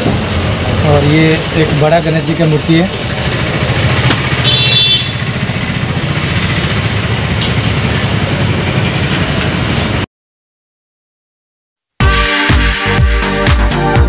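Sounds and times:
street traffic noise: 0.0s - 10.1s
vehicle engine running: 0.5s - 10.0s.

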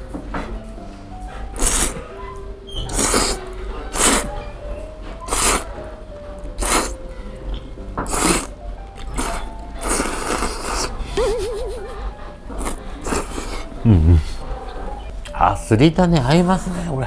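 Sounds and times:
person slurping noodles: 1.6s - 2.0s, 2.9s - 4.3s, 5.3s - 5.7s, 6.6s - 7.0s, 8.0s - 8.5s, 9.1s - 11.0s, 12.6s - 14.3s.

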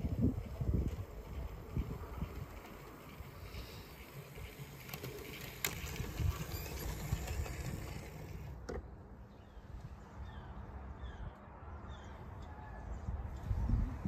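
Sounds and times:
wind buffeting microphone: 0.0s - 3.5s, 13.0s - 14.0s.

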